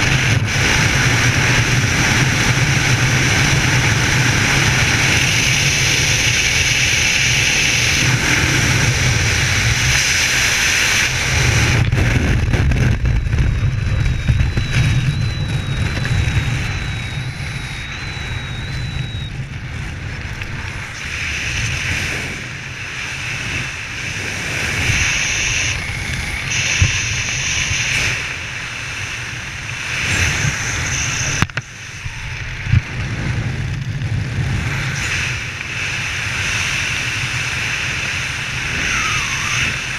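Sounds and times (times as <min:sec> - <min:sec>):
wind rushing over microphone: 0:00.0 - 0:39.9
faint wavering whistle: 0:13.9 - 0:19.5, 0:38.7 - 0:39.9.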